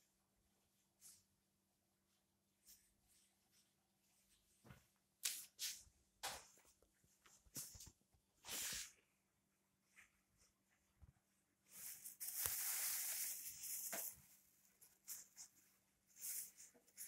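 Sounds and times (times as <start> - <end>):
plastic film rustling and crinkling: 11.7 - 17.0.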